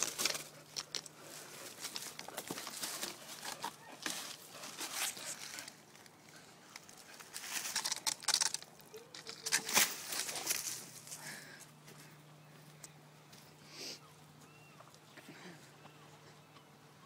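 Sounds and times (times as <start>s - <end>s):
claws scraping bark: 0.0s - 11.2s
leafy shoots rustling: 0.0s - 12.7s.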